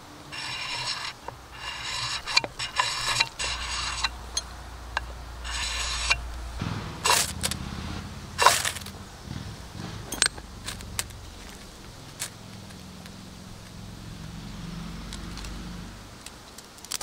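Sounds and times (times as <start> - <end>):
ferro rod scraping knife spine: 0.3 - 6.5, 8.4 - 8.9.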